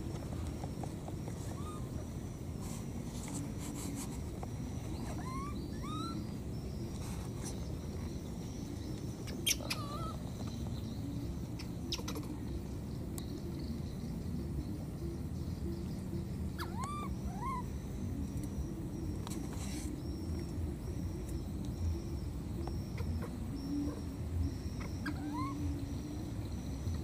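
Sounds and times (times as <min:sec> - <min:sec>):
steady low rumble: 0:00.0 - 0:19.2
short chirping calls: 0:04.8 - 0:08.0, 0:08.7 - 0:10.6, 0:16.5 - 0:17.8, 0:19.0 - 0:27.0.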